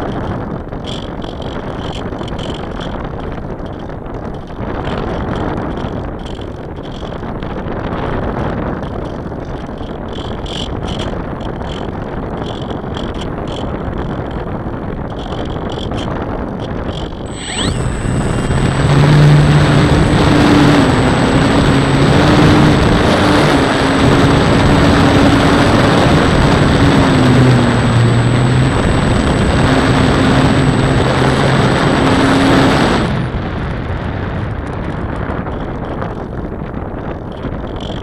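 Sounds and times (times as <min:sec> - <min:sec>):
wind rushing over microphone: 0:00.0 - 0:38.0
model airplane motor whine: 0:16.7 - 0:33.6.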